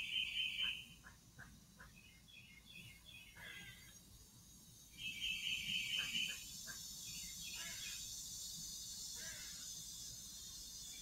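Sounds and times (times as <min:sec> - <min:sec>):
high insect hiss: 0:00.0 - 0:11.0
harsh grainy animal call: 0:05.1 - 0:08.1, 0:09.1 - 0:09.8.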